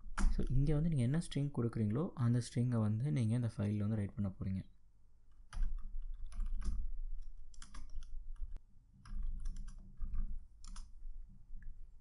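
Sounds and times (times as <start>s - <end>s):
computer keyboard typing: 0.0s - 0.8s, 5.3s - 11.0s.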